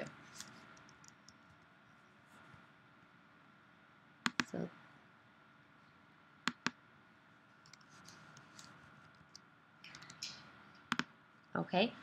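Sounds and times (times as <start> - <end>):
computer mouse clicks: 4.3 - 4.6, 6.5 - 6.8, 7.6 - 11.1.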